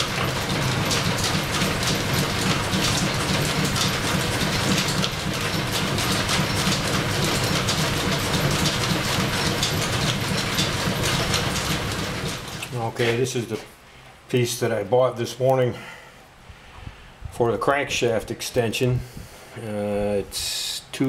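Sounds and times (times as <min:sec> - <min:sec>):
lathe running: 0:00.0 - 0:12.7
rapid irregular ticking clatter: 0:00.0 - 0:12.7.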